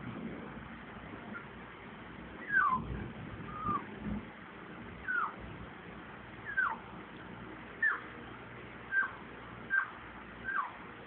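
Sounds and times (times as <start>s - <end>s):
puppy whimpering: 2.4s - 3.9s, 5.0s - 5.4s, 6.5s - 6.8s, 7.8s - 8.1s, 8.9s - 10.8s.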